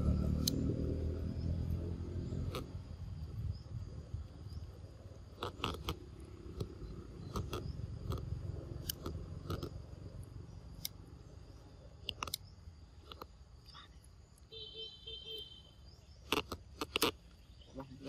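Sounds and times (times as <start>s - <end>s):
faint insect drone: 0.0s - 18.0s.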